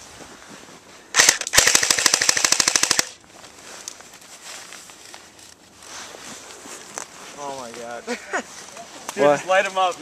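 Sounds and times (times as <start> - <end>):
airsoft gun full-auto burst: 1.1 - 3.2.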